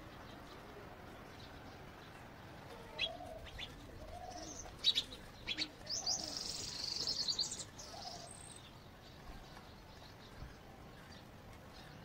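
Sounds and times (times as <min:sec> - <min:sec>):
small birds chirping: 0:00.0 - 0:12.0
dove cooing: 0:02.8 - 0:06.7, 0:07.8 - 0:08.4.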